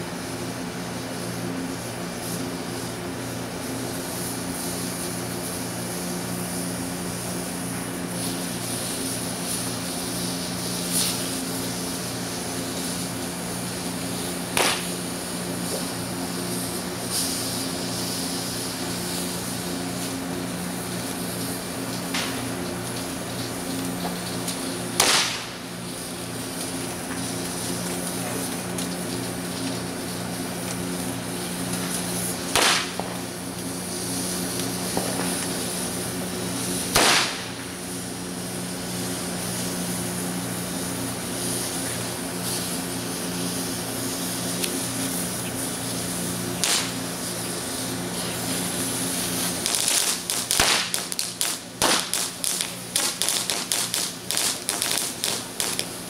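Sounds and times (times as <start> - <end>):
fireworks hissing: 0.0 - 56.0
small firecrackers popping: 7.5 - 20.2, 20.8 - 38.1, 41.4 - 56.0
firecracker bangs: 14.4 - 15.9, 22.0 - 22.6, 24.9 - 25.8, 32.3 - 33.3, 34.8 - 35.7, 36.7 - 37.8, 46.6 - 47.3, 49.2 - 56.0.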